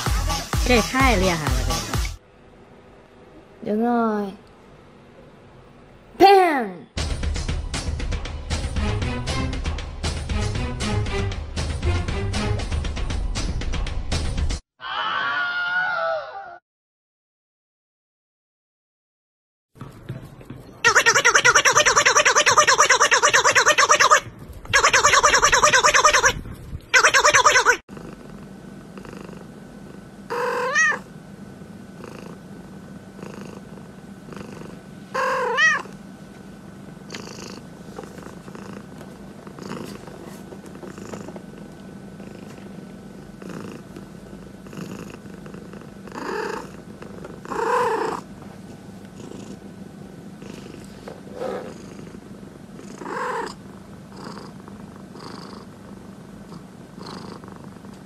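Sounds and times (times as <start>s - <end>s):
cat meowing: 20.9s - 24.2s, 24.8s - 26.4s, 27.0s - 27.8s, 30.3s - 31.1s, 35.2s - 35.9s
cat purring: 27.3s - 36.1s, 36.8s - 58.0s.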